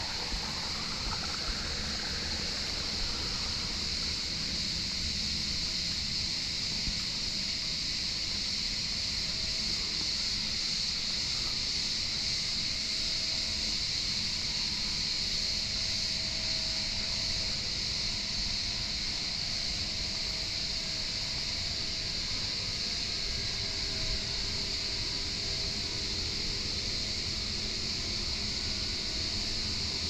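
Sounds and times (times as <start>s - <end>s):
faint low rumble: 0.0s - 5.6s
steady high-pitched hiss: 0.0s - 30.0s.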